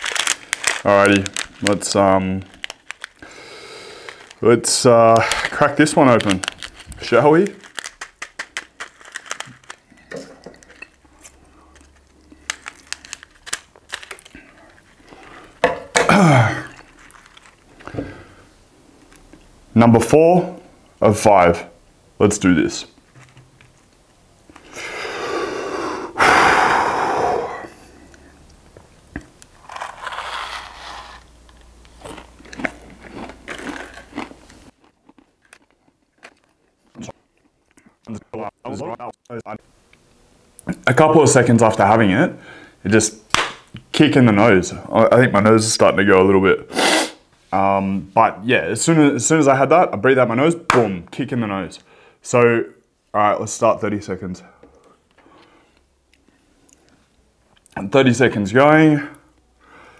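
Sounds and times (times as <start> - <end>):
packet crinkling: 0.0 - 15.6, 16.7 - 17.9, 29.5 - 37.0
person chewing crunchy seeds: 5.2 - 15.6, 16.6 - 17.8, 29.6 - 38.2.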